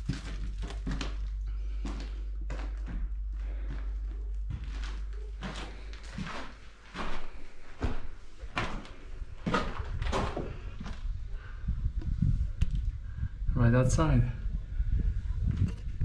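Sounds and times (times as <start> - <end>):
footsteps on rubble: 0.0 - 11.5.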